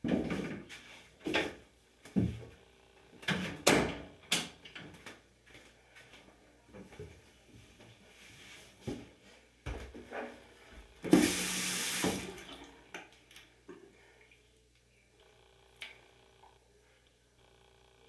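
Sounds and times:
tap water running: 11.0s - 13.1s.

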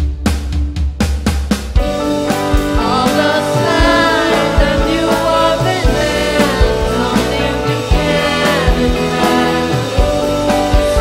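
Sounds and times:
drum fill: 0.0s - 11.0s
rock band playing: 0.0s - 11.0s
person singing: 2.7s - 11.0s.

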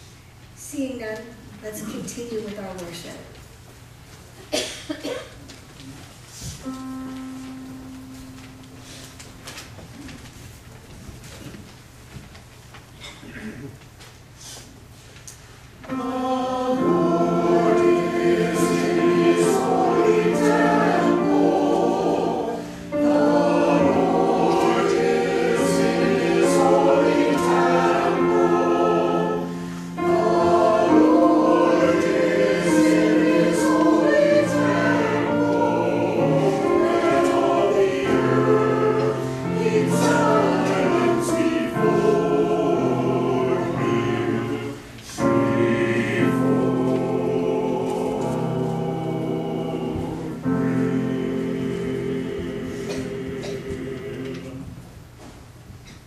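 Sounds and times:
church choir singing: 6.7s - 9.3s, 15.8s - 54.9s.

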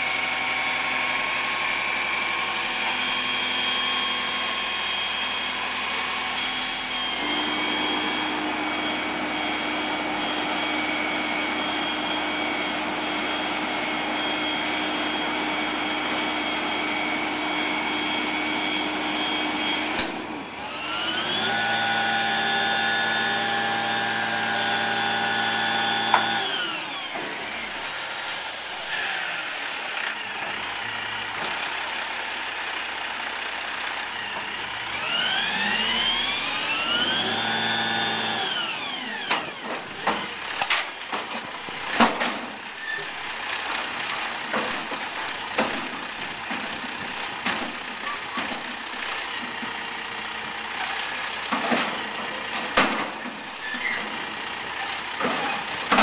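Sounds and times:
hydraulic whine: 0.0s - 31.4s, 34.1s - 43.1s
diesel engine at high revs: 0.0s - 42.1s.

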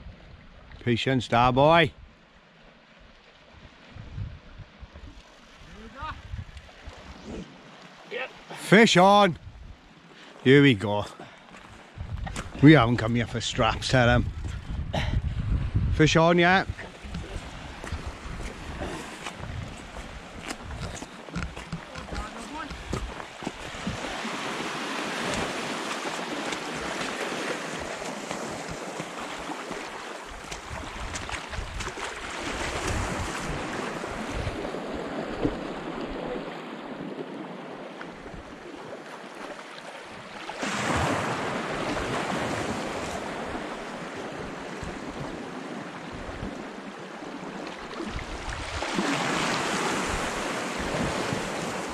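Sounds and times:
sea waves washing ashore: 0.0s - 51.9s
wind buffeting microphone: 3.5s - 7.5s, 9.3s - 9.8s, 11.7s - 36.4s.

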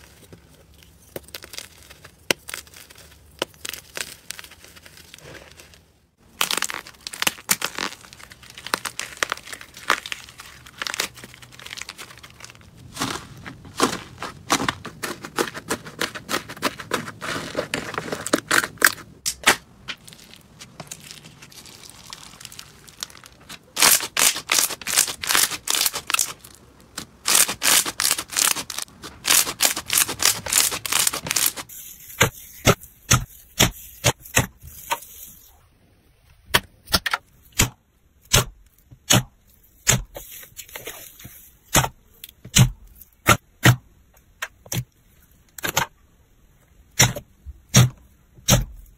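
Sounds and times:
slime crackling and popping: 1.0s - 13.2s, 13.8s - 31.7s.

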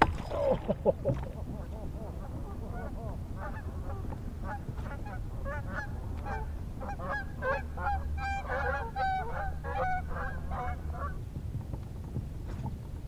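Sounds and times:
geese honking: 1.5s - 11.2s.

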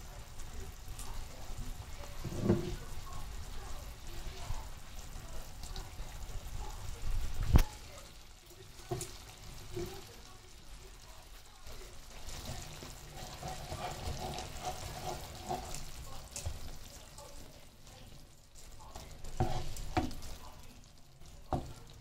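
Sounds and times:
food cooking in a pan: 0.0s - 22.0s
spoon stirring: 12.1s - 17.1s, 18.6s - 21.9s.

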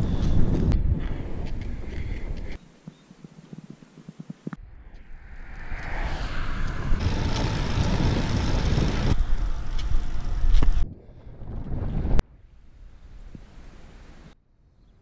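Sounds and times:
wind on microphone: 0.0s - 2.6s, 4.6s - 12.2s
road noise rumbling: 4.3s - 14.4s.

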